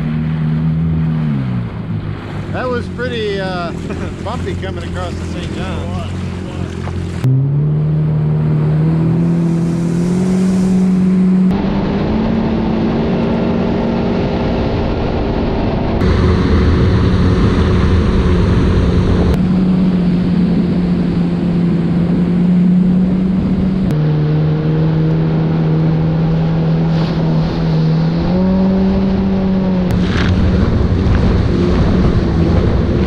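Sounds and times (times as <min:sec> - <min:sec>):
jet ski engine drone: 0:00.0 - 0:33.0
rushing wind: 0:08.8 - 0:33.0.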